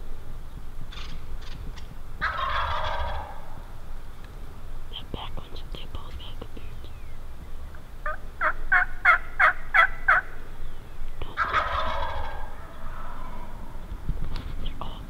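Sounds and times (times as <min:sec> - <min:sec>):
turkey gobble: 0:02.2 - 0:03.6, 0:08.0 - 0:10.4, 0:11.4 - 0:13.8
turkey yelps: 0:02.2 - 0:03.6, 0:08.0 - 0:10.4, 0:11.4 - 0:13.8.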